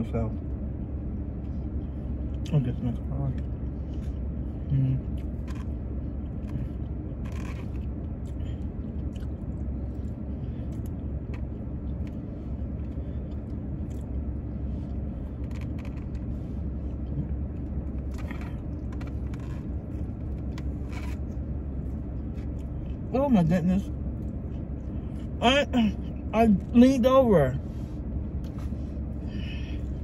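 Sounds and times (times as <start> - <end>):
car engine idling rumble: 0.0 - 30.0
faint clicks and rustles: 5.1 - 23.1.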